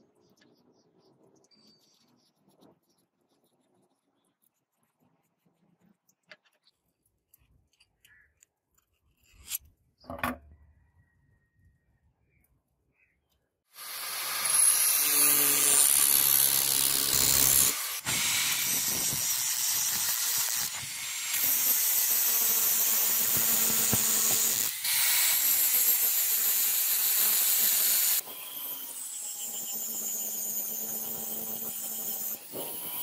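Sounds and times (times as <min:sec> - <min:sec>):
angle grinder grinding metal: 0:13.8 - 0:33.0.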